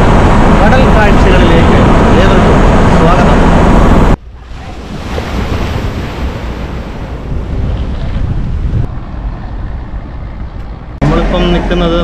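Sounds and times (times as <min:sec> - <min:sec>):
sea water rushing: 0:00.0 - 0:08.8
wind buffeting microphone: 0:00.0 - 0:11.0.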